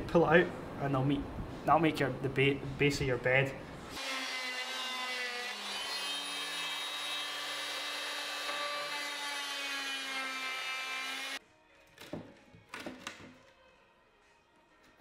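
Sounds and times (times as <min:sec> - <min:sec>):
electric saw cutting plywood: 0:03.9 - 0:11.4.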